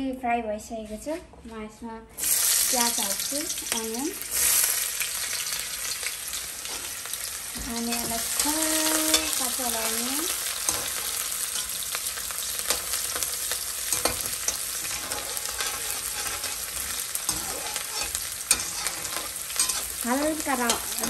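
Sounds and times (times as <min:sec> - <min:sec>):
onions sizzling in hot oil: 0:02.2 - 0:21.0
metal spatula scraping pan: 0:07.8 - 0:11.9, 0:12.6 - 0:21.0.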